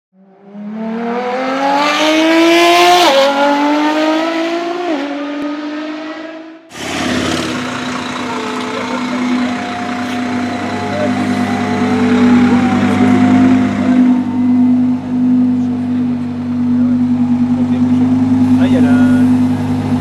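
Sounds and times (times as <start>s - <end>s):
car engine accelerating hard: 0.2s - 20.0s
car engine running at low speed: 6.8s - 20.0s.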